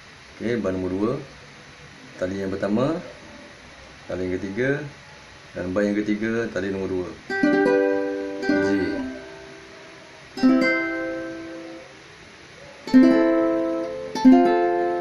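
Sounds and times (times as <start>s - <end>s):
ukulele strumming: 7.3s - 9.7s, 10.4s - 11.9s, 12.9s - 15.0s.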